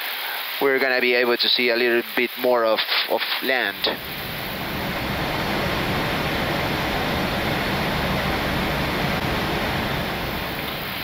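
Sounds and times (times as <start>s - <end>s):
airflow and air-conditioning hiss: 0.0s - 11.0s
low aircraft rumble: 3.8s - 11.0s.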